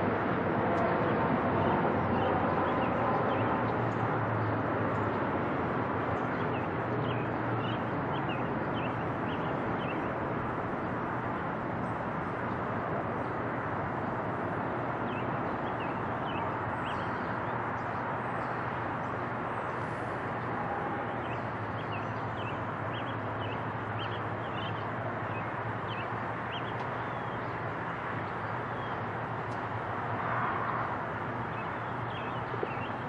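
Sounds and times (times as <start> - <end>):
small birds chirping: 21.2 - 27.6, 31.5 - 33.0.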